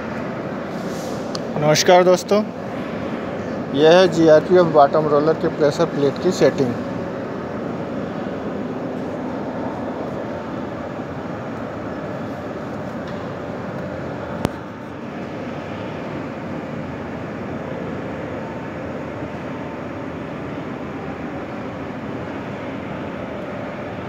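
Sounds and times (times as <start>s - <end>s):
factory machinery drone: 0.0s - 24.0s.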